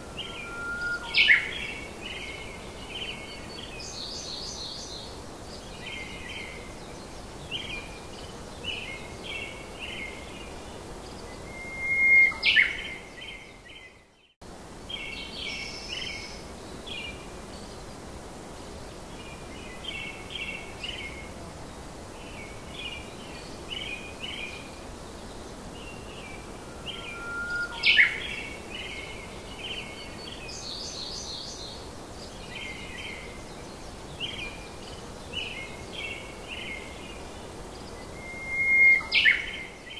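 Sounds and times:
birds chirping: 0.0 - 4.8, 25.3 - 37.2
steady hiss: 0.0 - 39.9
sharp bird calls: 26.0 - 29.1.

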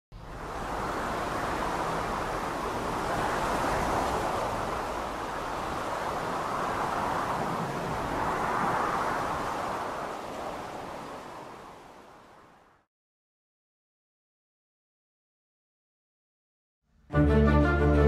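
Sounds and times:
steady rushing noise: 0.2 - 12.6.

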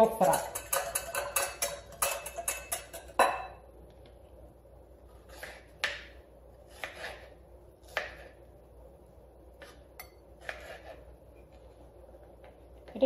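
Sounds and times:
whisk clinking against glass bowl: 0.0 - 3.5
knife cutting on wooden board: 5.1 - 8.4, 10.4 - 11.1.

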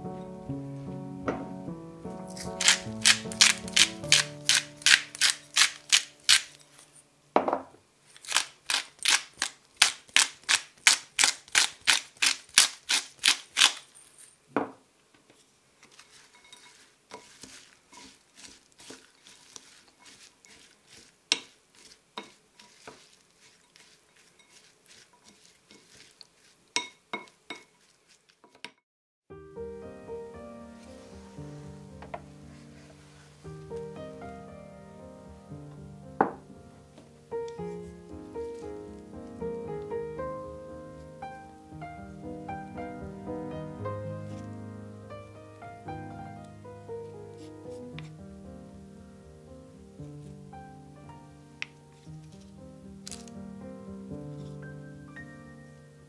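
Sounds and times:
knock: 1.3 - 1.5, 7.4 - 7.8, 14.6 - 14.8, 36.2 - 36.5
spice mill grinding: 2.2 - 7.0, 8.1 - 14.3, 15.8 - 28.5
wooden spoon stirring in glass bowl: 15.8 - 28.7.

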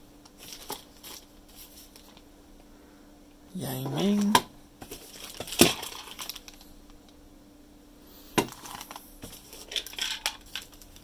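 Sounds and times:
plastic bags crinkling: 4.8 - 6.6, 8.5 - 11.0.

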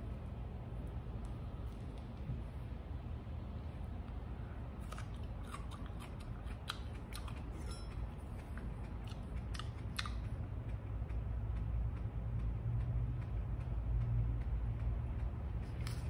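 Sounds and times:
low steady hum: 0.0 - 16.0
person chewing crunchy chili: 4.2 - 13.7.

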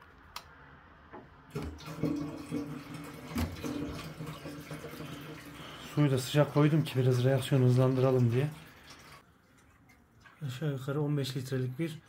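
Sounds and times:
liquid glugging into metal tank: 1.5 - 5.9.

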